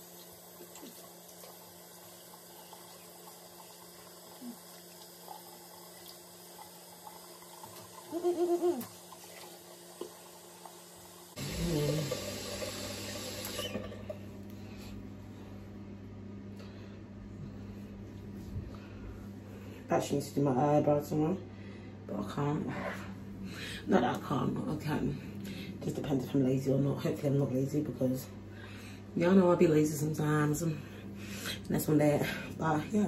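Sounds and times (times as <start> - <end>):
water rushing from sink tap: 0.0 - 14.2.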